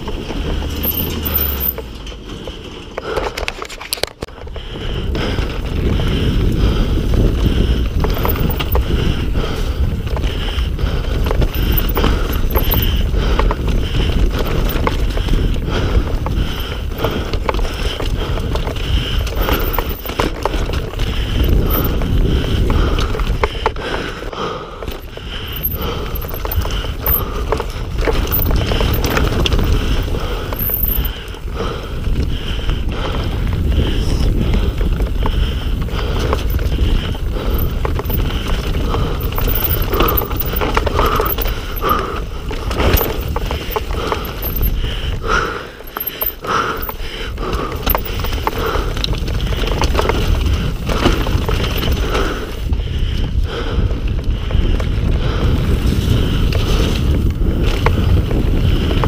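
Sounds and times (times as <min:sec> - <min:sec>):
heavy low rumble: 0:00.0 - 0:03.4, 0:04.3 - 0:59.0
bike clattering over rocks: 0:07.1 - 0:09.0, 0:11.0 - 0:23.7, 0:24.8 - 0:31.4, 0:34.8 - 0:52.3.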